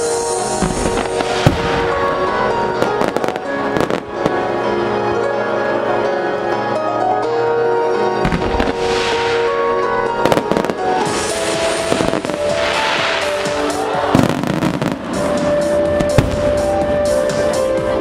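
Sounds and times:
fireworks crackling hiss: 0.0s - 4.4s, 8.4s - 17.6s
fireworks bangs: 0.0s - 4.6s, 8.2s - 17.6s
music with long held notes: 0.0s - 18.0s.

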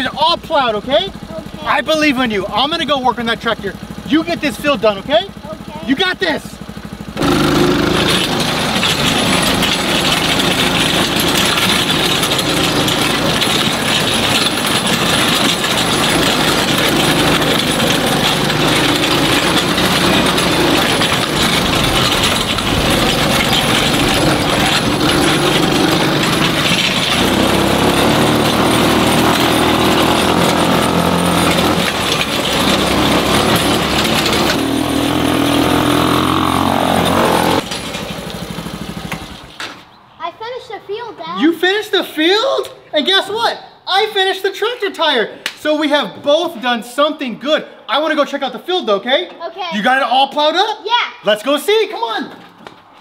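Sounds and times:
small engine running: 0.0s - 39.6s
plow tines scraping dirt: 0.0s - 40.0s.

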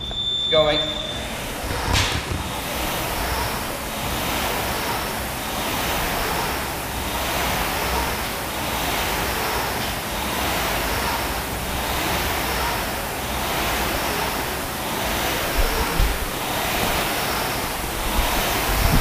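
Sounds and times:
rowing machine fan whooshing: 0.0s - 19.0s
low thumps: 1.4s - 3.8s.

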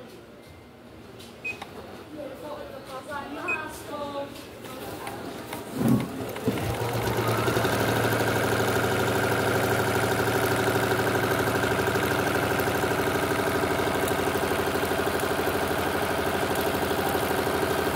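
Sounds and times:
sewing machine stitching: 5.4s - 17.9s.

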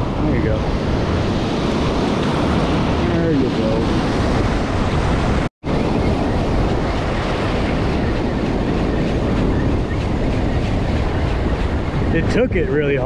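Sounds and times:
ocean surf breaking: 0.0s - 13.0s
wind rumbling on microphone: 0.0s - 13.0s.

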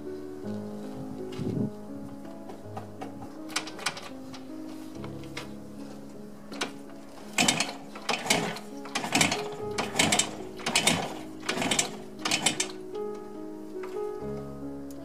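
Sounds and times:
soft background music: 0.0s - 15.0s
motorcycle kickstarter kicks: 7.3s - 12.8s.

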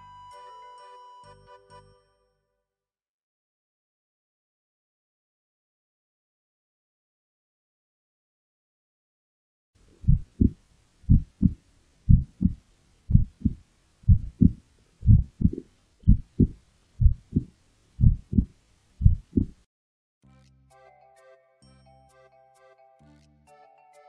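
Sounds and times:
heartbeat thumps: 10.0s - 19.6s.

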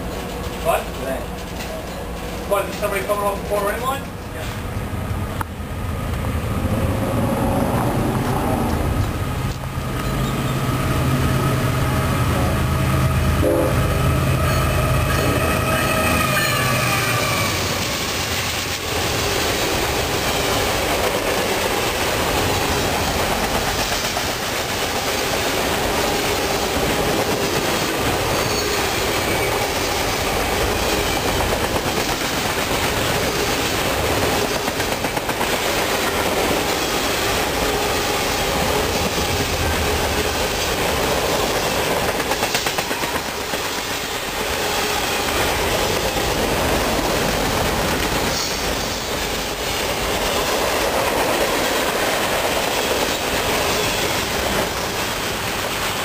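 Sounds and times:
wheels clickety-clack on rail joints: 0.0s - 4.8s, 5.4s - 10.8s, 15.1s - 56.0s
freight train rolling past: 0.0s - 56.0s.

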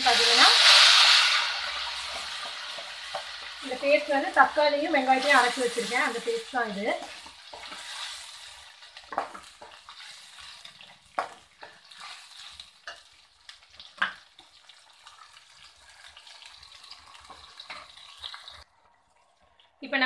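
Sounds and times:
paste sizzling in hot oil: 0.0s - 18.7s.

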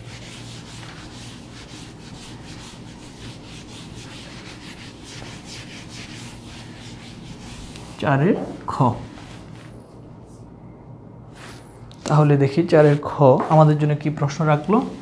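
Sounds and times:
eraser rubbing on whiteboard: 0.0s - 9.7s.

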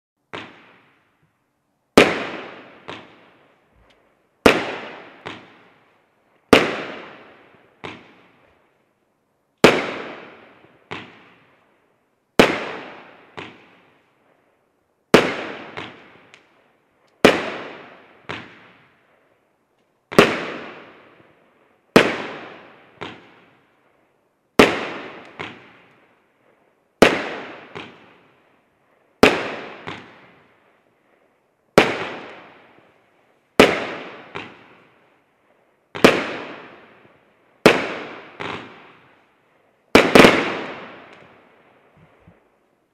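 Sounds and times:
firework bangs: 0.3s - 1.0s, 2.0s - 3.4s, 4.4s - 5.8s, 6.5s - 8.4s, 9.6s - 11.4s, 12.4s - 13.8s, 15.1s - 16.5s, 17.2s - 18.9s, 20.1s - 21.2s, 21.9s - 23.5s, 24.6s - 25.9s, 27.0s - 28.3s, 29.2s - 30.5s, 31.7s - 32.8s, 33.6s - 34.9s, 35.9s - 39.1s, 39.9s - 41.5s
smaller firework bangs: 0.3s - 1.2s, 1.9s - 8.7s, 9.6s - 11.6s, 12.4s - 14.5s, 15.1s - 19.3s, 20.0s - 42.6s.

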